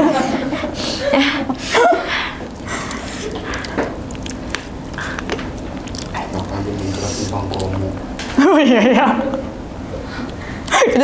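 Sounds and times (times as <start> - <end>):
chewing: 2.1 - 8.4, 10.0 - 10.8
hands working through food: 2.1 - 8.4.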